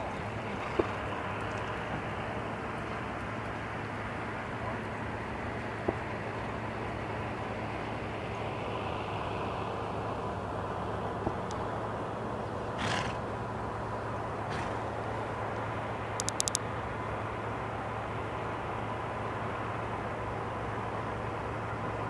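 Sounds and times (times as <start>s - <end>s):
constant low hum: 0.0s - 22.0s
outdoor rumble and hiss: 0.0s - 22.0s
quick clicks: 16.2s - 16.6s.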